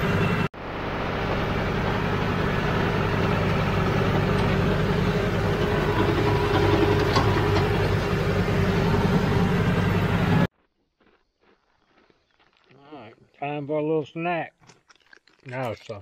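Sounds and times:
diesel tractor engine running: 0.0 - 10.5.

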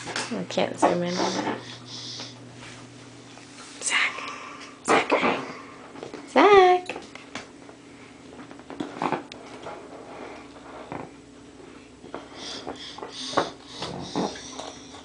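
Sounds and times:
faint steady hum: 0.0 - 15.0
baby sniffing and grunting: 1.0 - 2.4, 12.3 - 14.9.

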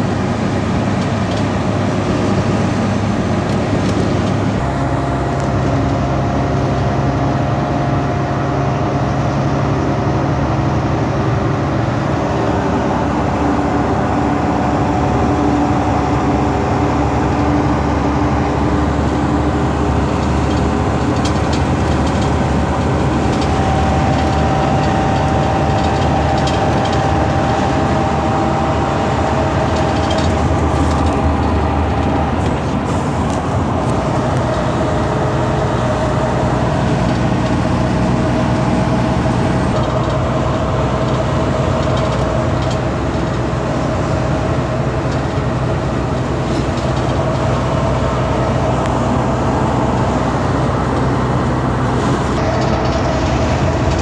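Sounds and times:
road noise: 0.0 - 54.0
truck diesel engine humming: 0.0 - 54.0.

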